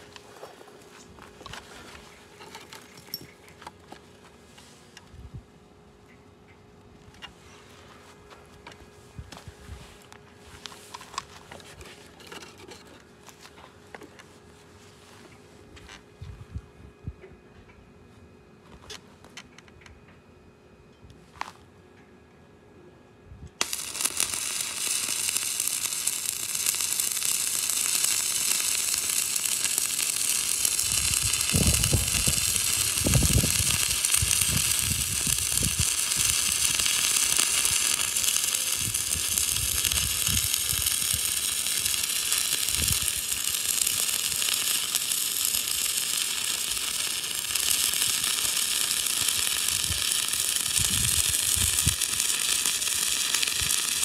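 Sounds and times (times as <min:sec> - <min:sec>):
welding arc crackling: 0:23.6 - 0:54.0.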